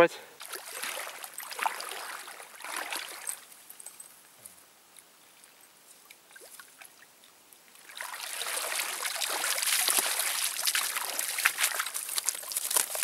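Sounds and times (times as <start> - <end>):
wading splashes: 0.4 - 3.5, 7.7 - 13.0
water streaming off a net: 0.4 - 3.5, 7.7 - 13.0.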